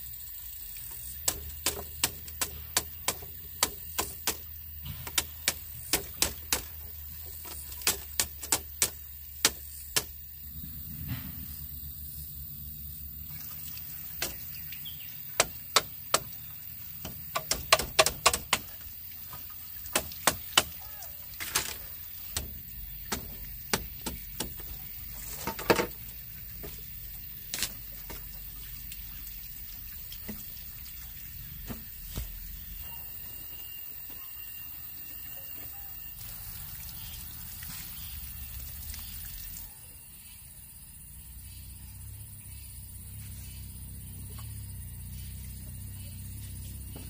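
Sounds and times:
sharp knocks and clicks: 1.2 - 10.2, 14.2 - 14.5, 15.4 - 18.9, 19.9 - 20.8, 21.4 - 24.8.

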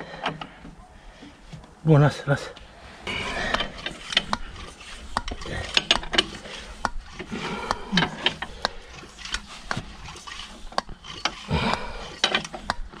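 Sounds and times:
sharp clicks and knocks: 3.4 - 13.0.

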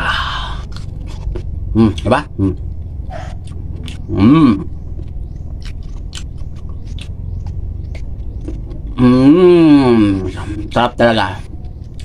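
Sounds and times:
wet chewing: 0.5 - 9.0, 10.0 - 12.0
lip and tongue clicks: 0.6 - 4.1, 5.0 - 8.6.

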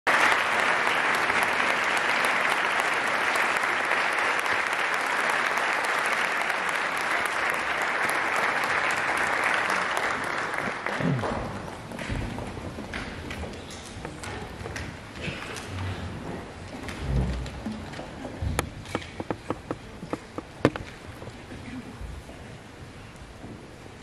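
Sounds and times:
audience applauding: 0.0 - 12.1.

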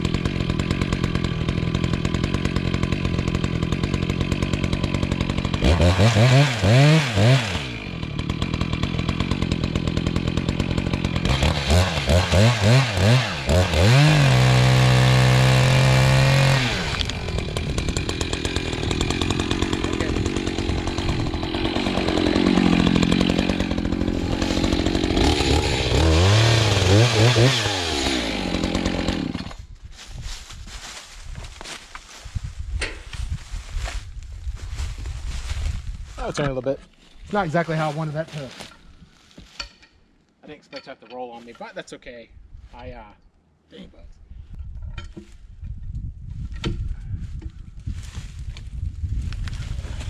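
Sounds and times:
chainsaw cutting log: 0.0 - 29.7.

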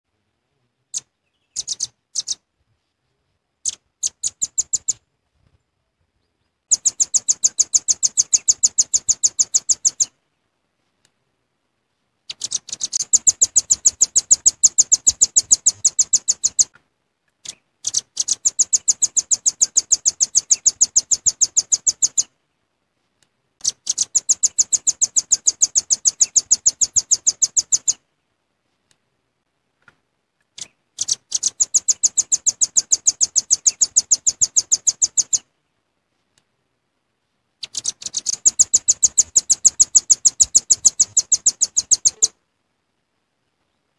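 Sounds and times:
nuthatch calling: 0.9 - 2.4, 3.6 - 5.0, 6.7 - 10.1, 12.3 - 16.7, 17.4 - 22.3, 23.6 - 28.0, 30.6 - 35.4, 37.6 - 42.4.

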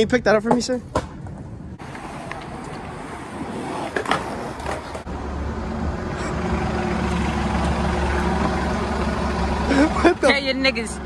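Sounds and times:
street noise: 0.0 - 11.0
bus engine idling: 5.1 - 11.0.

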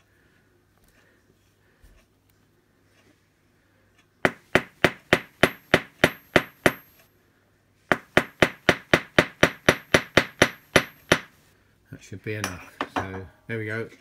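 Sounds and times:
hammer tapping rivet on metal: 4.3 - 7.0, 7.9 - 11.3.

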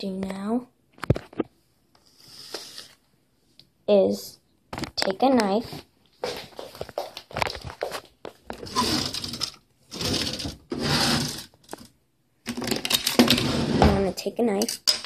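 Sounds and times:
child's voice: 3.9 - 4.4, 13.8 - 14.7.

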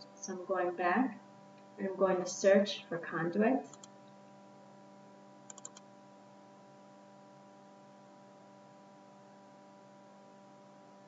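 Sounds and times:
faint electrical hum: 0.0 - 11.0
computer keyboard clicks: 3.7 - 3.9, 5.5 - 5.9.

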